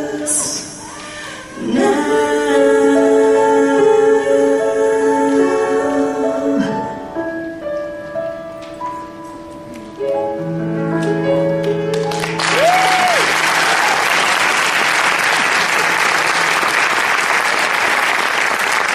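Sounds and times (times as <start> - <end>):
soft piano chords: 0.0 - 13.5
audience applause: 11.9 - 18.9
short cheer: 12.4 - 14.3.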